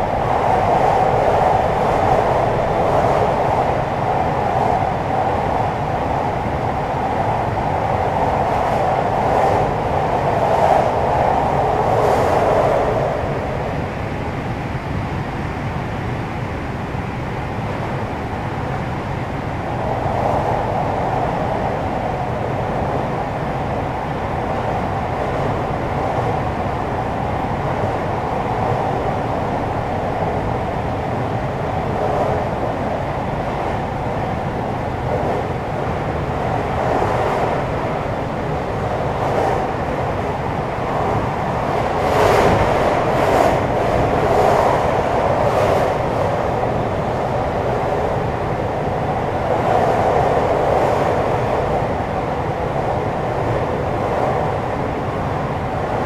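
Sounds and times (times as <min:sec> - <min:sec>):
train wheels rumbling on rails: 0:19.8 - 0:56.0.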